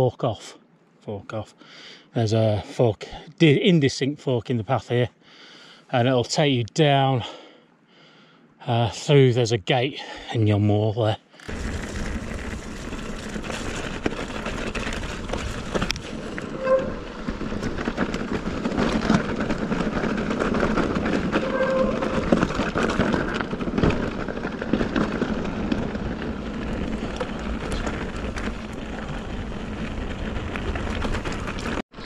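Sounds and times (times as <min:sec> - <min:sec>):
bike rattling and knocking: 0:11.5 - 0:31.8
bike tyres rumbling on rocks: 0:11.5 - 0:31.8
brief squeaks: 0:16.4 - 0:17.1, 0:21.3 - 0:22.4.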